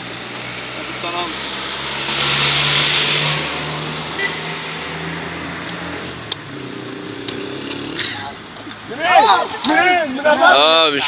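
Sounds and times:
car passing: 0.0 - 11.0.

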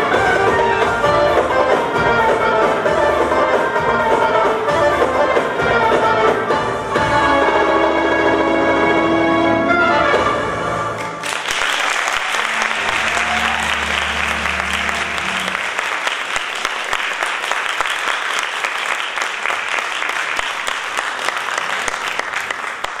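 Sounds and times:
audience applauding: 11.0 - 23.0
low hum: 12.4 - 15.8.

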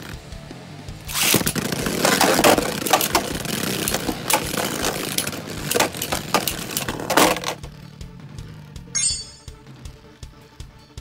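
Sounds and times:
spinning tops clacking together: 1.1 - 7.6
spinning tops clattering in plastic bowl: 1.1 - 7.6.

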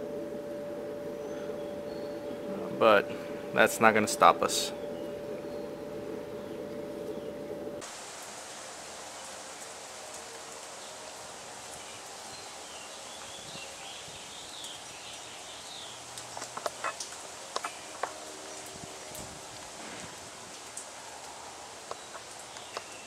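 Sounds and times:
steady outdoor hiss: 0.0 - 23.0
bird chirping: 1.1 - 7.8.

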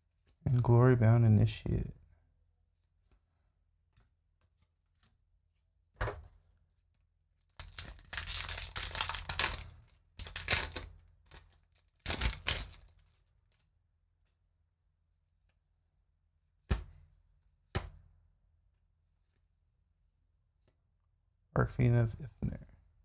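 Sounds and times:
foil wrapper ripping and crinkling: 7.6 - 13.3
foil wrapper rustle: 7.6 - 13.6.

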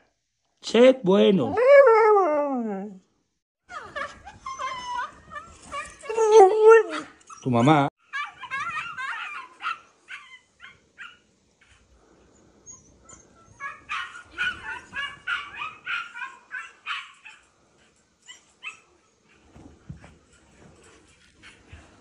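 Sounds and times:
dog whining and yipping: 3.7 - 11.8, 12.6 - 17.5, 18.2 - 19.7.

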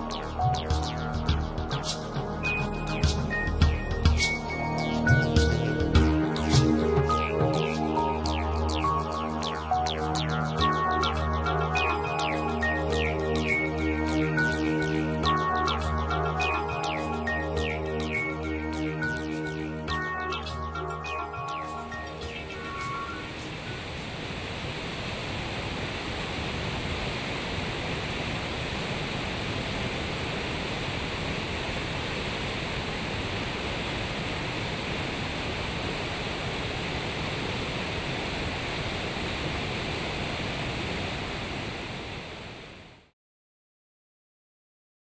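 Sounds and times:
river rapids rushing over boulders: 22.3 - 42.8.

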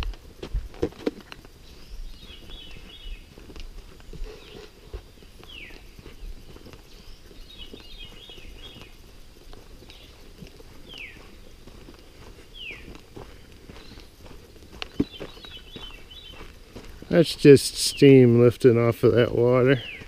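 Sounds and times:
footsteps crunching on dirt path: 0.0 - 20.0
songbirds whistling: 1.6 - 17.2, 19.7 - 20.0
bird chattering trills: 10.8 - 12.9, 14.9 - 16.5.

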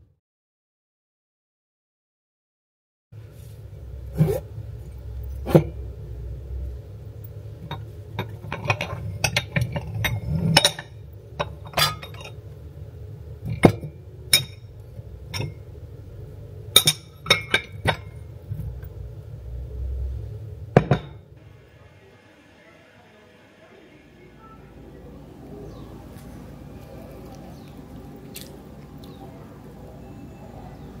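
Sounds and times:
glasses and cups clinking: 7.7 - 12.4, 13.5 - 14.7, 15.3 - 15.6, 16.8 - 18.2, 20.8 - 21.2.

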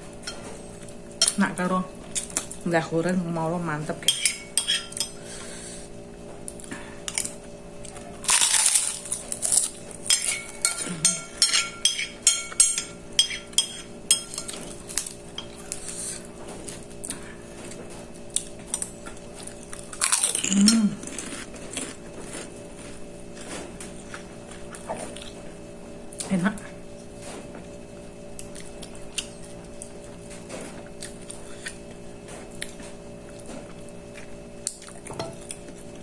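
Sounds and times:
cracker crunching: 6.4 - 10.6, 16.6 - 25.4.

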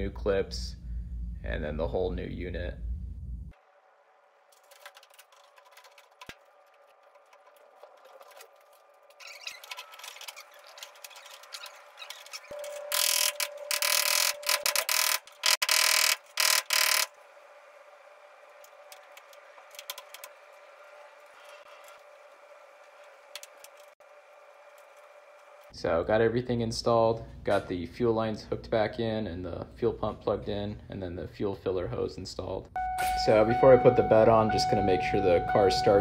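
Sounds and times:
metal and plastic parts clicking: 4.6 - 17.1.

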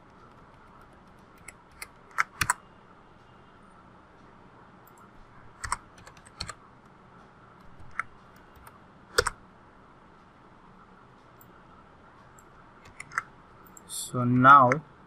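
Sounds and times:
computer keyboard keystrokes: 0.0 - 2.6, 5.6 - 6.6, 7.7 - 9.4, 12.8 - 13.8.

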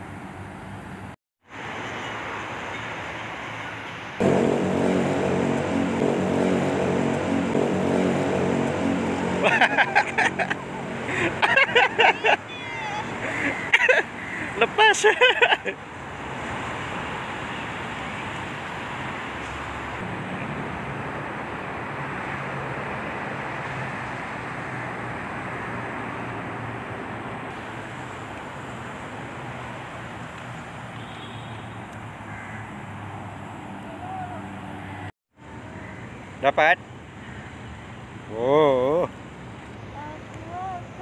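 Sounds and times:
road traffic hiss: 0.0 - 41.0
faint engine hum: 4.2 - 14.6.

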